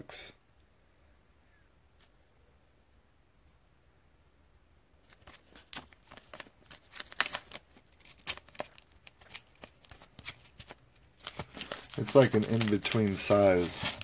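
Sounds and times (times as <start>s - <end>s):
plastic card holder crinkling: 5.0s - 14.0s.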